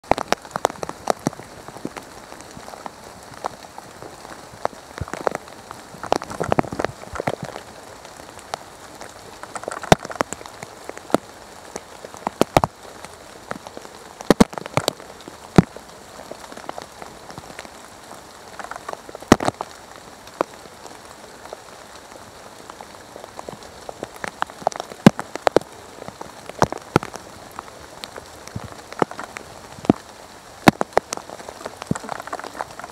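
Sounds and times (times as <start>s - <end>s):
rain pattering on leaves: 0.0s - 32.9s.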